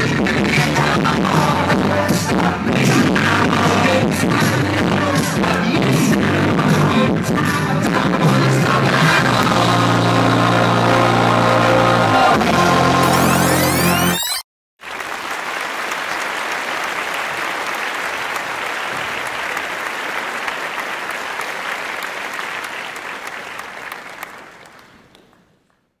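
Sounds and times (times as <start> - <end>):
music: 0.0 - 14.4
crowd applauding: 14.8 - 26.0.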